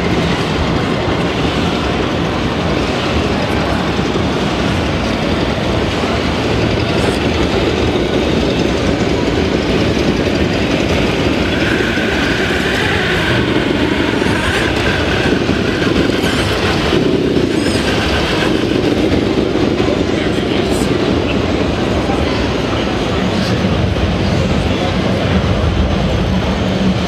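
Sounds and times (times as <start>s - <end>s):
busy hall din: 0.0s - 27.0s.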